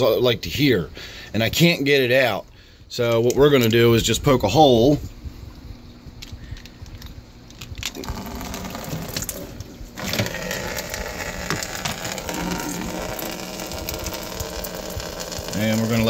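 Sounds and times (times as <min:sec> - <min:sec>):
water pouring into aquarium: 0:07.9 - 0:16.0.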